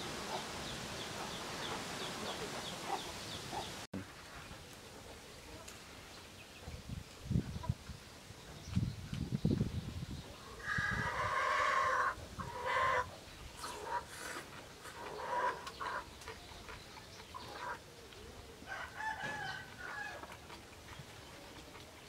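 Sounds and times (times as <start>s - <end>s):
rooster crowing: 18.7s - 20.2s.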